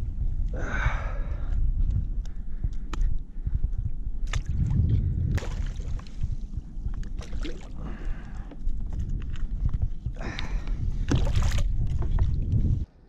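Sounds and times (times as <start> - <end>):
wind on microphone: 0.0 - 12.9
water lapping against kayak: 4.4 - 12.8.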